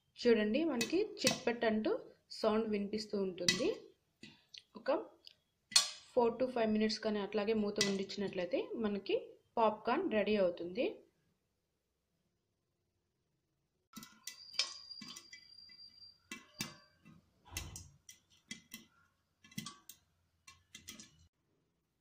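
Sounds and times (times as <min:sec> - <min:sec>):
popcorn popping in covered pan: 0:00.6 - 0:01.6, 0:03.2 - 0:03.8, 0:07.6 - 0:08.5, 0:13.9 - 0:21.3.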